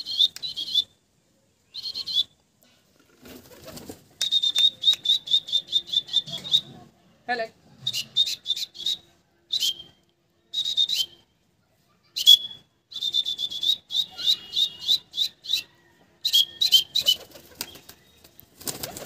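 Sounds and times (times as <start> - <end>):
wings fluttering: 3.0 - 4.5, 16.9 - 19.0.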